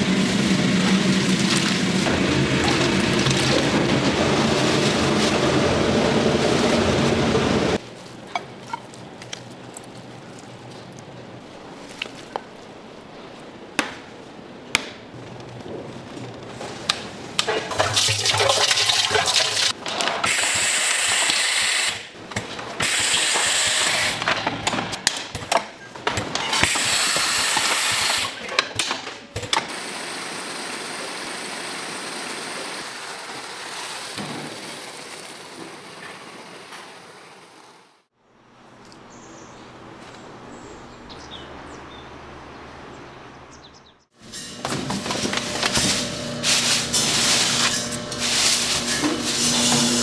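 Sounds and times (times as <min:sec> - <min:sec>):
water rushing: 0:00.6 - 0:07.2.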